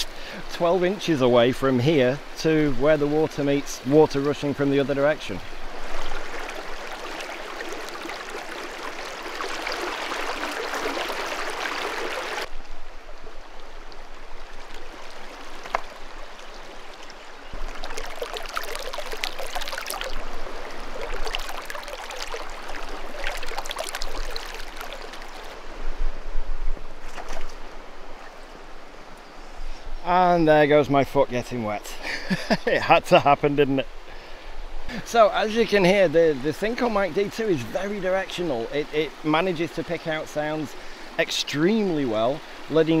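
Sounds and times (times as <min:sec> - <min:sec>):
river water rushing over rocks: 0:04.6 - 0:12.6, 0:13.3 - 0:25.7
water gurgling with small splashes: 0:05.2 - 0:12.5, 0:13.9 - 0:25.6.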